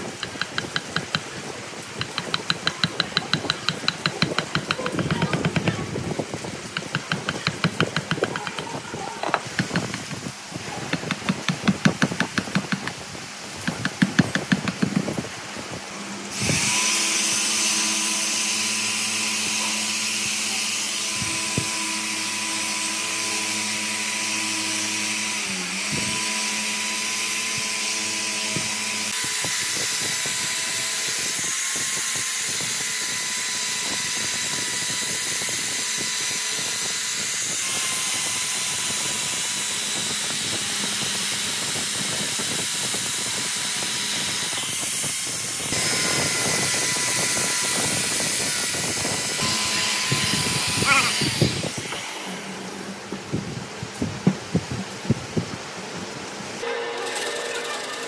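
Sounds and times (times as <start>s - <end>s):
power tool high whine: 16.3s - 52.8s.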